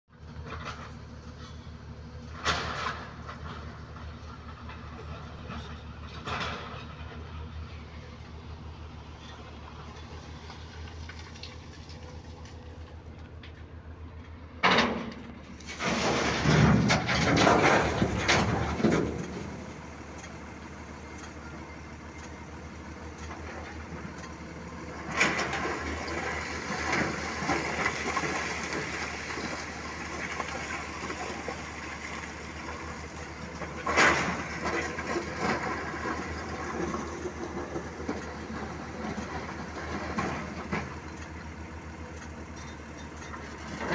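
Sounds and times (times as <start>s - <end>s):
heavy engine running: 0.1s - 43.9s
rock crashing and clattering: 15.7s - 19.2s.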